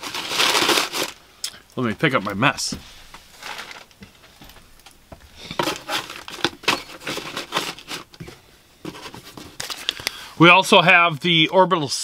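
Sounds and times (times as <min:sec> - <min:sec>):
paper packaging crinkling: 0:00.0 - 0:01.2, 0:03.2 - 0:10.2.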